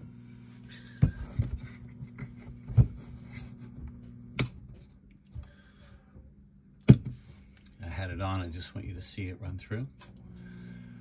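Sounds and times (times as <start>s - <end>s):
power inverter humming: 0.0s - 5.8s, 9.7s - 11.0s.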